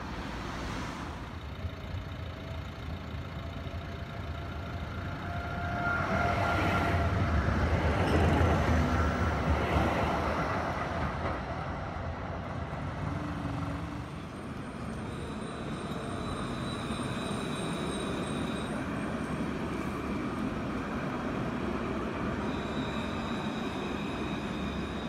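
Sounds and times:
tram wheels rumbling on rails: 0:00.0 - 0:25.0.

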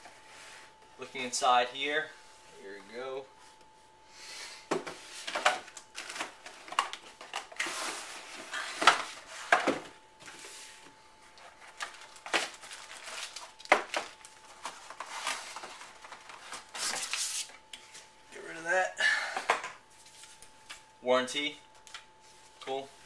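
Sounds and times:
plastic bags rustling and crinkling: 0:05.2 - 0:18.1.

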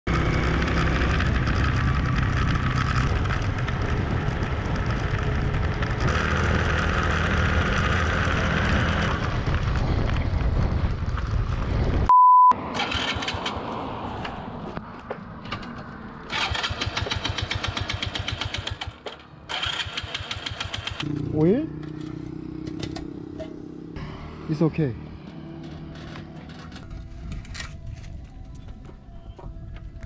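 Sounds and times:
motorcycle engine rumble: 0:00.1 - 0:12.1, 0:12.8 - 0:30.0
wind noise: 0:01.0 - 0:12.1, 0:26.8 - 0:30.0
electronic beep: 0:12.1 - 0:12.6.

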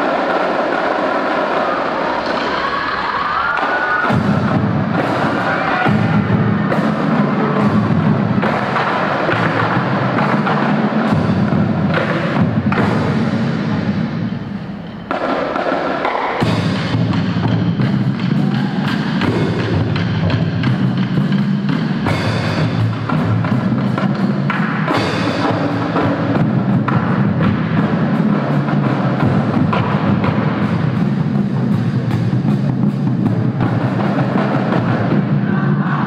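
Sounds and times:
snare and tenor drums rattling: 0:15.1 - 0:35.2
pitched bass drums: 0:16.4 - 0:36.0.

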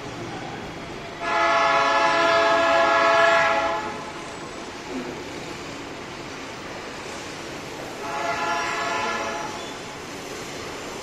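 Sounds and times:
locomotive air horn blast: 0:01.2 - 0:04.2, 0:08.0 - 0:09.7.

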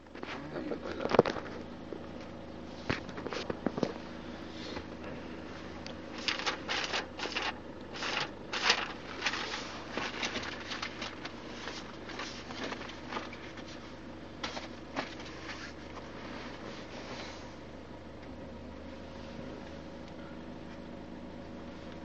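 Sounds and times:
rustling and scraping: 0:00.0 - 0:17.6
faint steady hum: 0:00.0 - 0:22.0.

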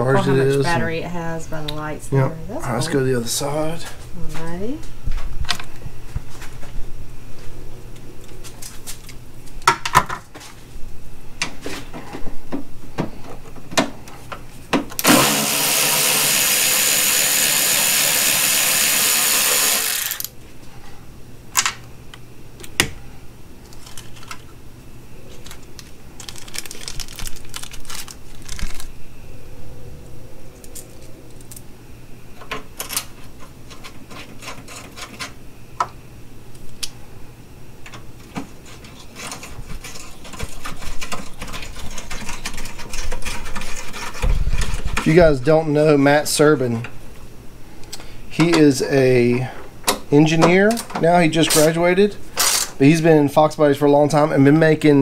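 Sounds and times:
electric ratchet running: 0:15.0 - 0:20.4, 0:52.4 - 0:52.8.

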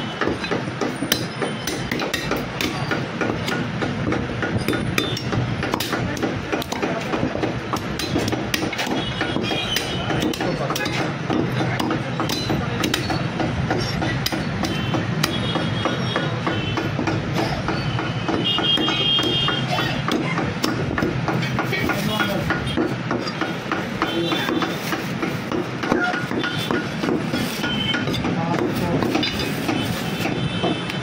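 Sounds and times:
cleaver chopping on wooden block: 0:00.1 - 0:31.0.

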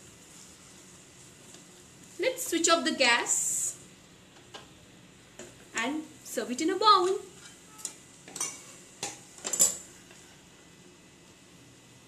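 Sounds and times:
spatula scraping metal pan: 0:07.3 - 0:08.8.

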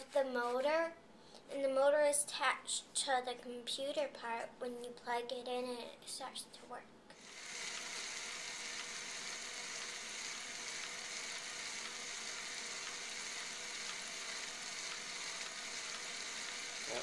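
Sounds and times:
small motor whirring gears: 0:07.1 - 0:17.0.

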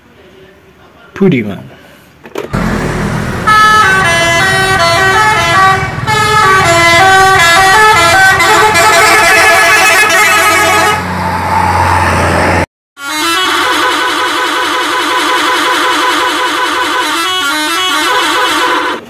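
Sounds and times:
bus engine hum: 0:02.4 - 0:19.0
musical bus air horn: 0:02.6 - 0:11.1, 0:13.0 - 0:19.0.

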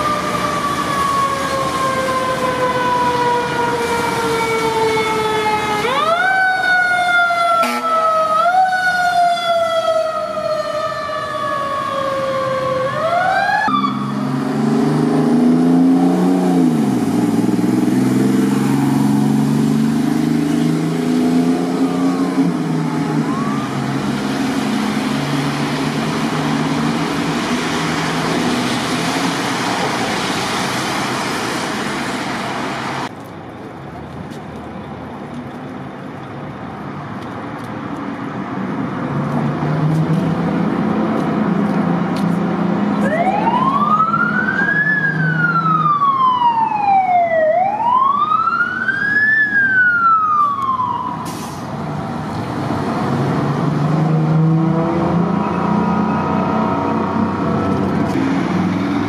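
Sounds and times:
fire truck siren wailing: 0:00.0 - 0:33.1, 0:42.7 - 0:59.0.

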